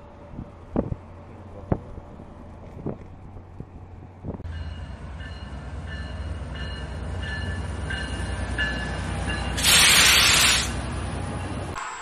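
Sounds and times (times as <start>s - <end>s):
diesel locomotive rumbling: 0.0s - 11.8s
train bell ringing: 4.4s - 9.8s.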